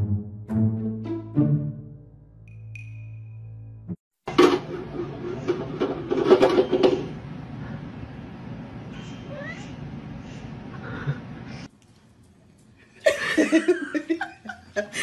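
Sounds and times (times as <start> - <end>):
music: 0.0 - 4.0
cat meowing: 9.2 - 9.8.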